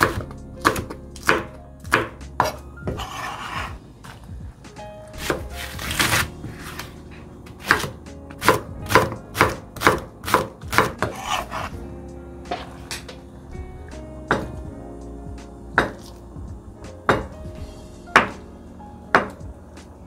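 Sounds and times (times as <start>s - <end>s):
knife chopping on cutting board: 0.0s - 3.6s, 5.2s - 6.8s, 7.6s - 11.7s
knife scraping swishes: 3.0s - 3.7s.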